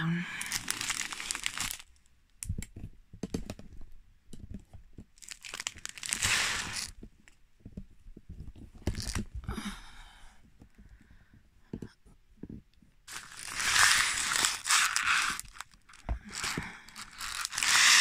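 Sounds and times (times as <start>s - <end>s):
plastic bags crinkling: 0.4s - 1.9s, 5.2s - 6.9s, 13.1s - 18.0s.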